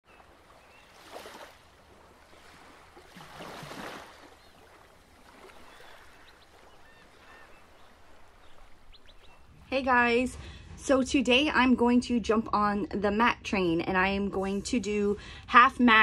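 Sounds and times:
ocean waves washing in: 0.1s - 10.9s.

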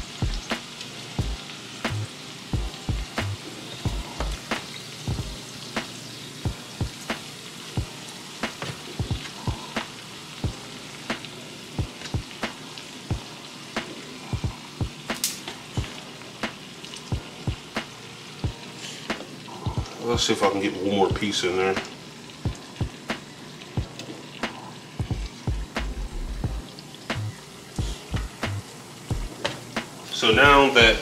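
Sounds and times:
sharp pops of frying: 0.0s - 7.4s, 8.4s - 10.0s, 11.0s - 18.0s, 21.7s - 26.0s, 27.1s - 27.4s, 28.2s - 31.0s
meat sizzling in a skillet: 0.0s - 31.0s.

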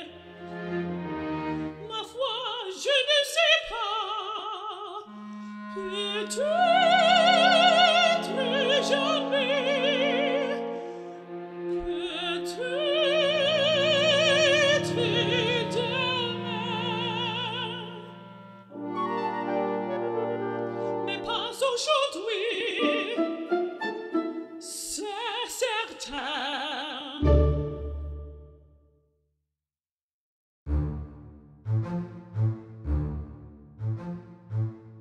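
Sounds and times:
woman singing opera aria: 0.0s - 0.3s, 1.8s - 11.0s, 11.7s - 18.2s, 21.0s - 23.5s, 24.6s - 27.4s
orchestra: 0.0s - 3.0s, 5.1s - 25.4s, 27.2s - 28.6s, 30.7s - 35.0s.

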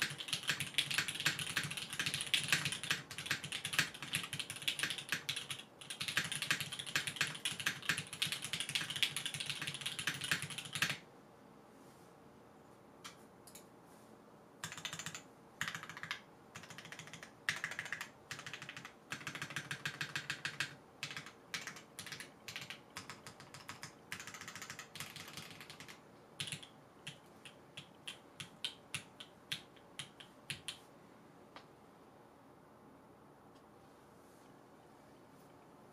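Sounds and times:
mechanical keyboard typing: 0.0s - 11.0s, 14.6s - 30.8s
faint steady hiss: 0.0s - 35.9s.

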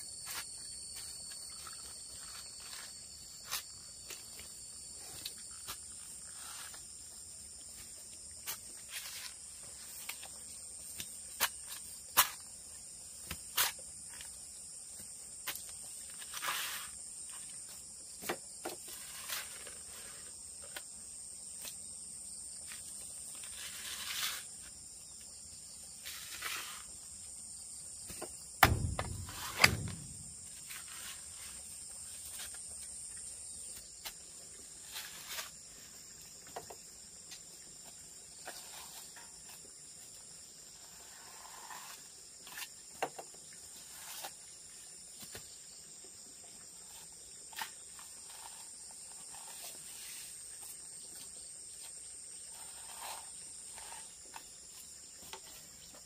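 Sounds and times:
insects chirring: 0.0s - 56.0s
heavy thuds: 28.2s - 30.8s.

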